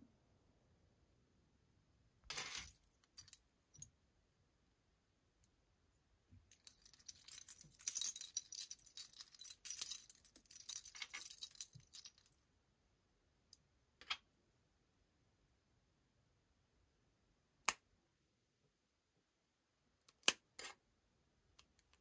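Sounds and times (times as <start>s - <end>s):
metal rings and charms jingling: 2.3s - 3.4s, 6.5s - 12.4s.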